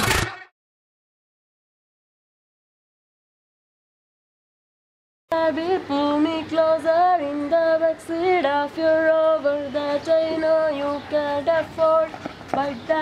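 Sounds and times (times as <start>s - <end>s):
young person singing: 5.3s - 13.0s.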